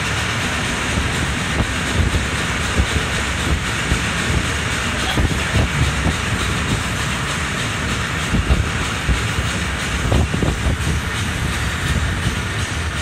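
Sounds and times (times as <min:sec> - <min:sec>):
low knocks from train wheels: 0:00.0 - 0:13.0
train rumbling on rails: 0:00.0 - 0:13.0.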